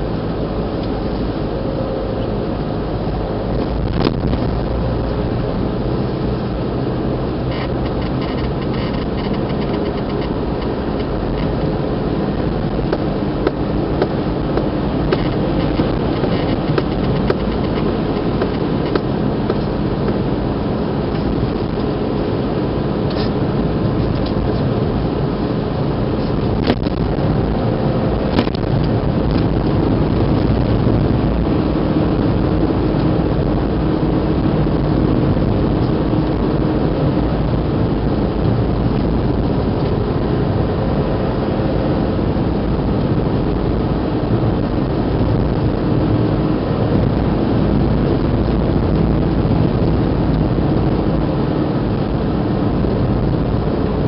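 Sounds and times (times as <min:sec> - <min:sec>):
car engine and tyre rumble: 0:00.0 - 0:54.0
sharp clicks and knocks: 0:07.5 - 0:11.7, 0:12.8 - 0:20.2, 0:28.3 - 0:29.6.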